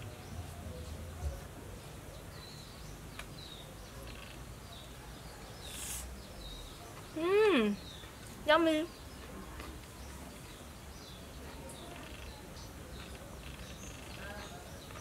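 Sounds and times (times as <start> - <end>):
faint bird chirps: 2.1 - 15.0
brief rustling hiss: 5.6 - 6.1.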